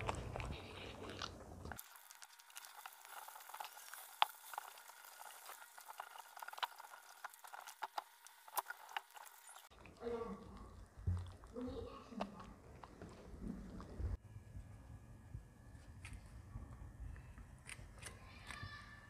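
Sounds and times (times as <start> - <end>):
dog eating wet smacking: 0.0 - 14.2.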